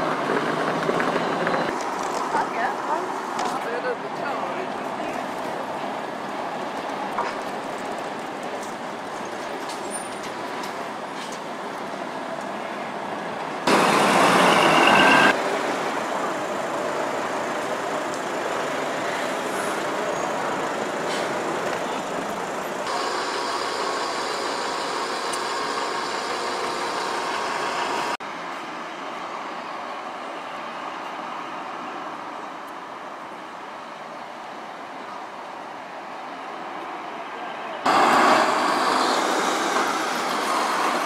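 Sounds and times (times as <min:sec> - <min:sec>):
diesel buses pulling away: 0:00.0 - 0:03.4, 0:04.3 - 0:34.8, 0:37.8 - 0:41.0
high squeal: 0:13.7 - 0:15.4.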